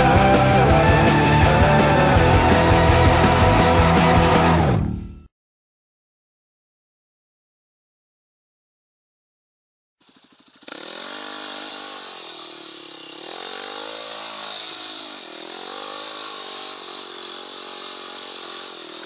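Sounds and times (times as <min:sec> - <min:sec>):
dirt bike engine revving: 0:00.0 - 0:05.0, 0:10.0 - 0:19.0.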